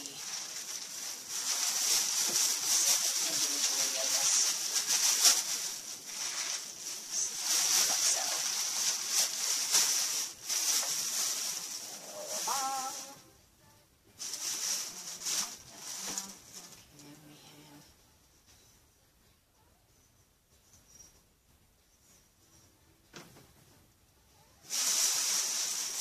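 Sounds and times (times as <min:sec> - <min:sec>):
packaging rustling and crinkling: 0:00.0 - 0:13.2, 0:14.2 - 0:16.9, 0:24.7 - 0:26.0.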